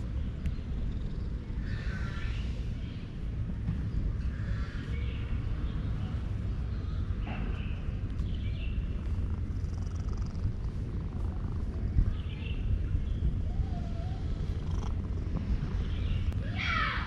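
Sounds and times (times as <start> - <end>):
cat purring: 0.6 - 1.4, 8.9 - 12.3, 13.2 - 16.3.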